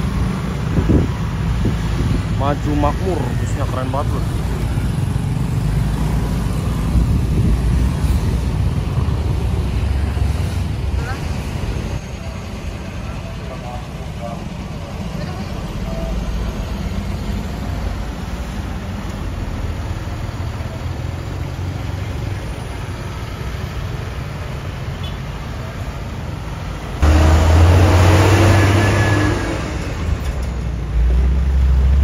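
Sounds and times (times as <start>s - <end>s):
bus diesel engine rumble: 0.0s - 32.0s
motorcycles moving close by: 27.0s - 30.6s.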